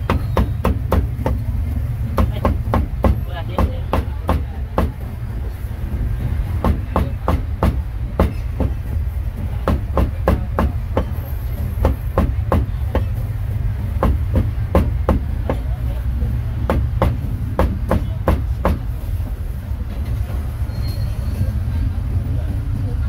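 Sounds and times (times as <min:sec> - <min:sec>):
cleaver chopping meat on board: 0:16.7 - 0:18.8.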